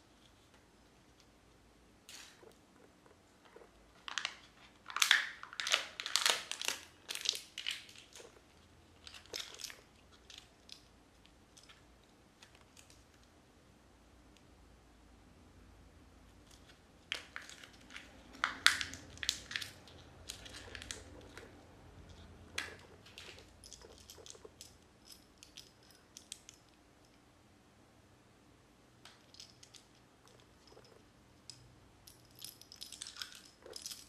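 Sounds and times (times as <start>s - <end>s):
plastic wrapper crinkling: 4.0s - 8.3s, 17.1s - 21.5s
plastic toy parts clicking: 4.9s - 8.4s.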